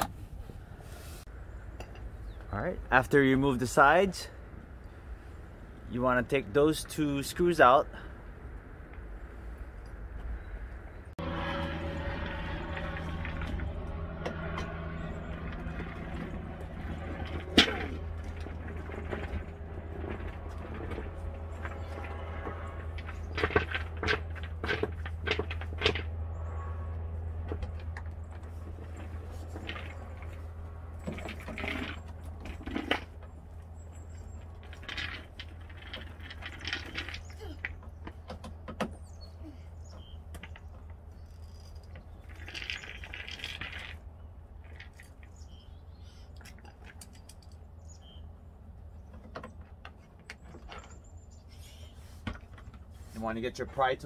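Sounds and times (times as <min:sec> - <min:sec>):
steady low hum: 0:10.9 - 0:35.8.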